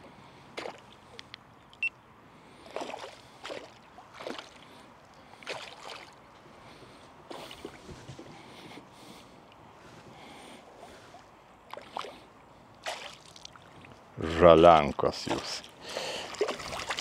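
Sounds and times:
water splashing and sloshing: 0:00.3 - 0:01.3, 0:02.5 - 0:08.7, 0:10.8 - 0:17.0.

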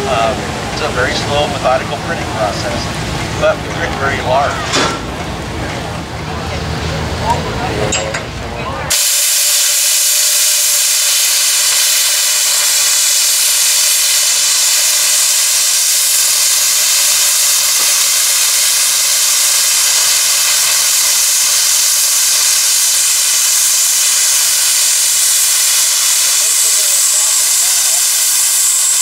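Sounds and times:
steam venting hiss: 0:08.9 - 0:29.0.

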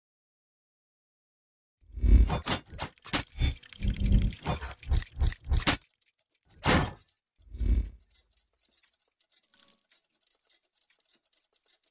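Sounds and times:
mechanical gear clunks: 0:06.5 - 0:07.8.

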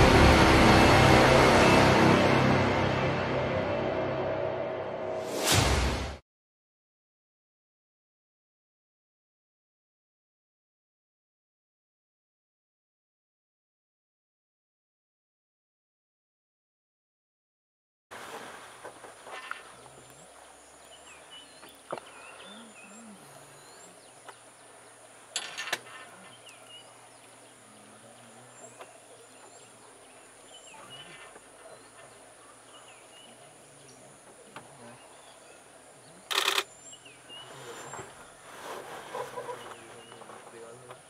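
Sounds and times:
bird chirps: 0:19.4 - 0:25.0.

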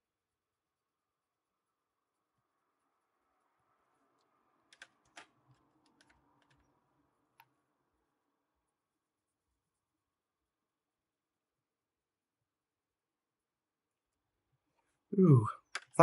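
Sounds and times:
coloured pencils clicking and clattering: 0:04.7 - 0:06.7.

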